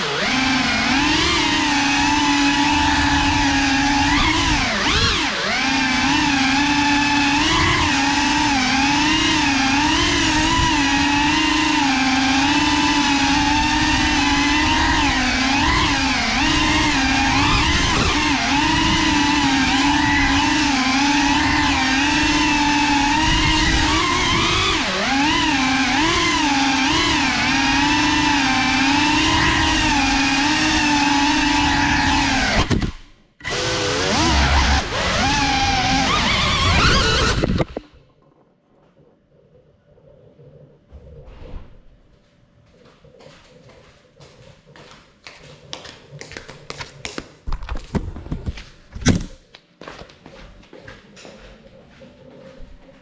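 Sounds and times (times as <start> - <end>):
quadcopter motors whining: 0.0 - 38.0
footsteps in flip-flops: 42.1 - 53.0.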